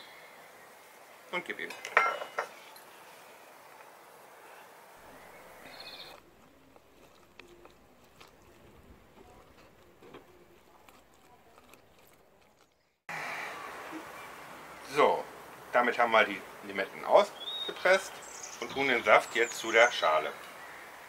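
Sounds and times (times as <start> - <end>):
citrus juicer squishing and scraping: 5.1 - 13.0.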